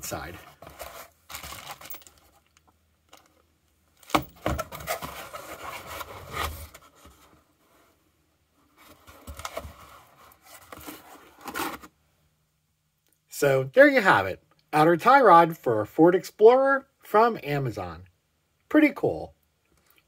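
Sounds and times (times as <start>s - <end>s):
rubbing and scraping of parts: 4.1s - 8.0s.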